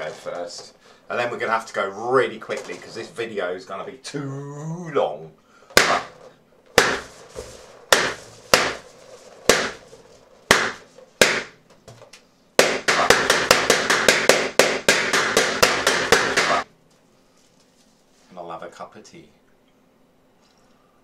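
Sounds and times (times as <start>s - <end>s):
balloons bursting: 5.7s - 11.7s, 12.6s - 16.7s.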